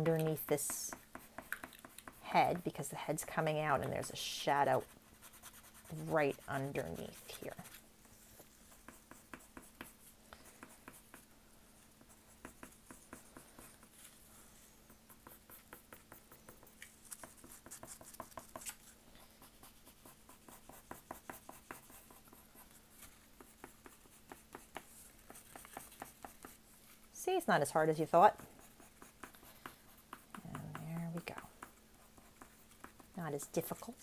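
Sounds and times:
pencil scratching on paper: 0.0 - 11.3, 11.9 - 26.6, 27.3 - 34.0.

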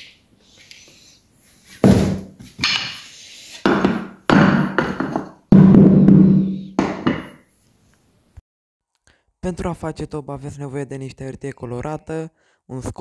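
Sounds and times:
bucket drum beats: 3.7 - 7.3.

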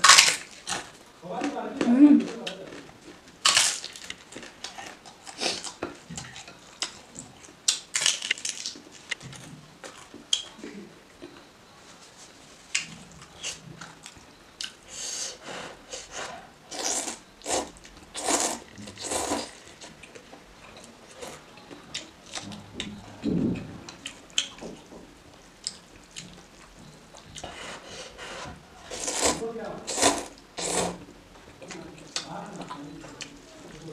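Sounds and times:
chewing: 2.2 - 10.6, 25.6 - 33.9
noodles slurping: 28.0 - 31.1.

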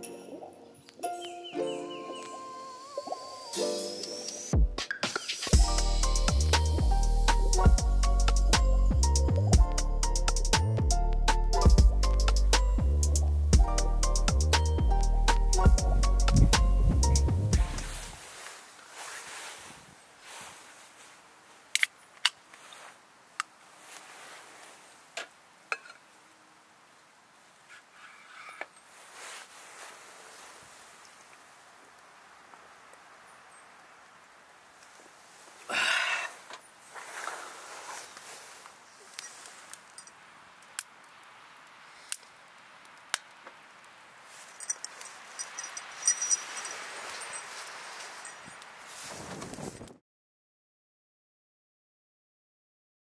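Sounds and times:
campfire crackling and popping: 3.0 - 18.2, 38.2 - 45.9
metallic clicks and clinks of a can: 44.6 - 46.8.

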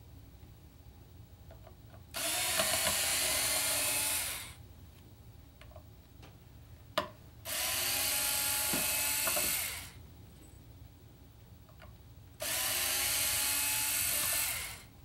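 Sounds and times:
power driver running: 2.2 - 4.6, 7.5 - 10.0, 12.4 - 14.9.

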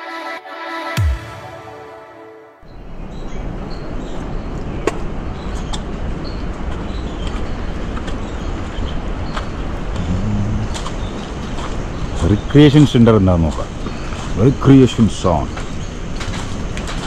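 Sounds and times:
music track: 0.0 - 2.7.

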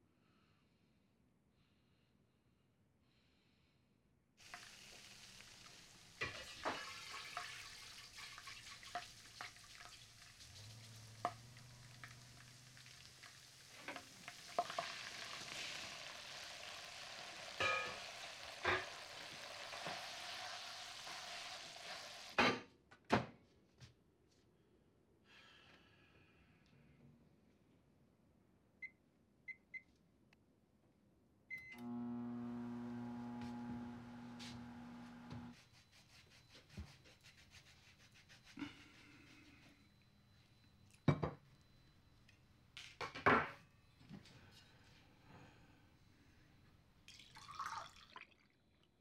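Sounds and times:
pasta sizzling in a frying pan: 4.4 - 22.4.

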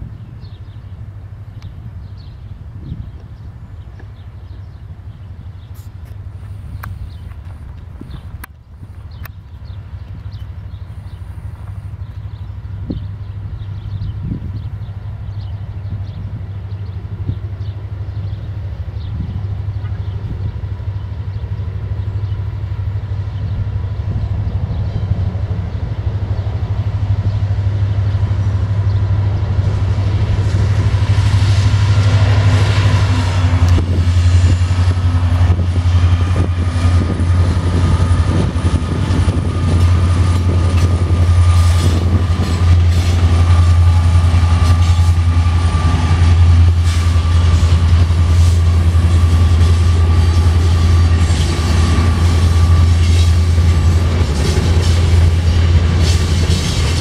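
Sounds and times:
diesel locomotive engine rumble: 0.0 - 57.0
train wheels clicking over rail joints: 30.1 - 57.0.

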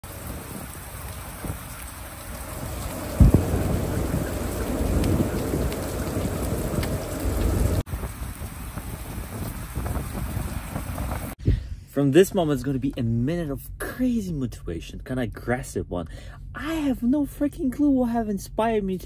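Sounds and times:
heavy rain on wet pavement: 0.0 - 11.4
thunder crack and rumble: 0.0 - 11.4.

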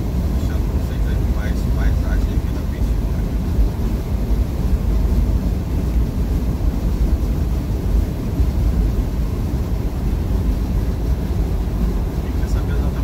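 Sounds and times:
road noise: 0.0 - 13.0
truck engine rumble: 0.0 - 13.0.

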